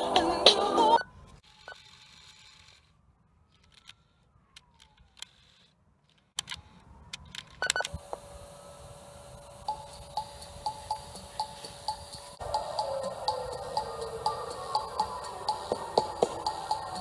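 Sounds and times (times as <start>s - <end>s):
faint whine: 6.6s - 16.9s.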